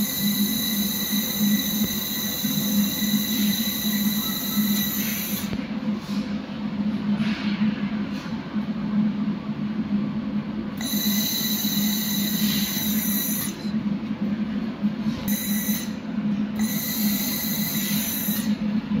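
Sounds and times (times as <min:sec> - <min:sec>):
high-pitched welding whine: 0:00.0 - 0:05.7, 0:10.8 - 0:13.8, 0:15.0 - 0:18.9
welding machine low hum: 0:00.0 - 0:07.2, 0:07.8 - 0:19.0.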